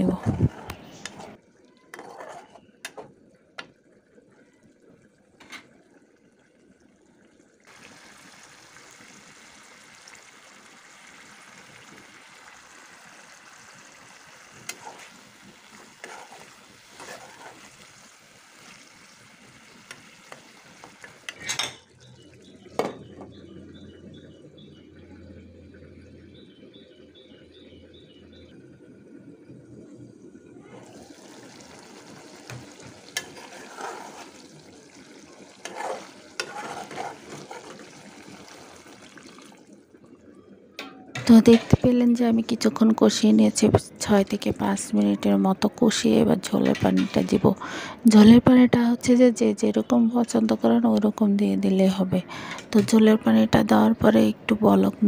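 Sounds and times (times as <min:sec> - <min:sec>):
metal spatula scraping a pot: 0:01.9 - 0:02.7, 0:14.7 - 0:15.2, 0:15.8 - 0:17.9, 0:33.1 - 0:34.5, 0:35.6 - 0:37.9, 0:46.6 - 0:47.5
frying sizzle: 0:07.6 - 0:23.4, 0:30.6 - 0:39.8, 0:41.2 - 0:51.3.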